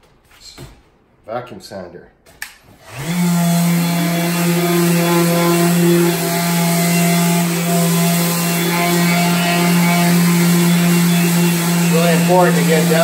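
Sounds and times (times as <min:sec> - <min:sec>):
orbital sander running: 0:02.8 - 0:13.0.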